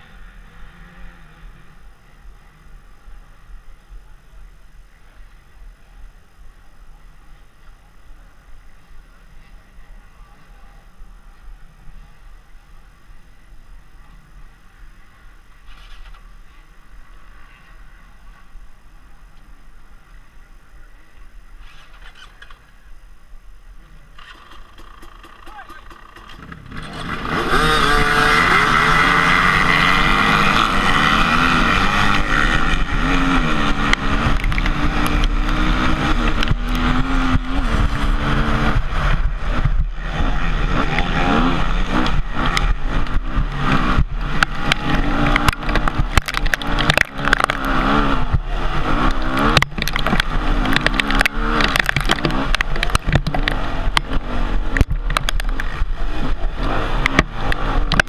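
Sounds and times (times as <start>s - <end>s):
dirt bike engines revving: 0.0s - 58.0s
knocks and clatters from terrain: 43.8s - 47.8s, 49.0s - 55.9s.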